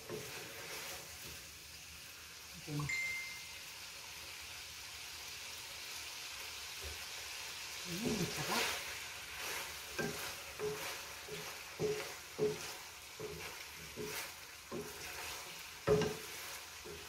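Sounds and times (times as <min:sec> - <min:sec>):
spatula scraping a pan: 0:00.0 - 0:01.5, 0:08.0 - 0:17.0
food sizzling in a pan: 0:00.0 - 0:17.0.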